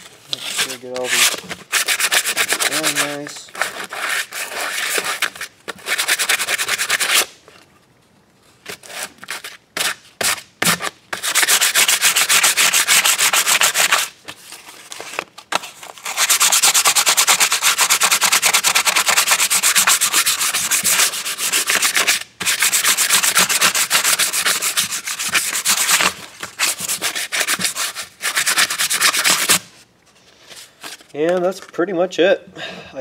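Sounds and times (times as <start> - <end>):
sandpaper rubbing on wood: 0.4 - 7.3, 11.1 - 14.1, 16.0 - 29.6.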